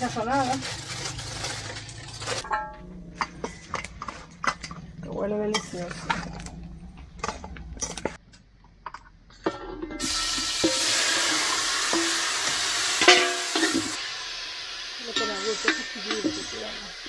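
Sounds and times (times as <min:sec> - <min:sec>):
meat sizzling in hot oil: 0:10.0 - 0:17.0.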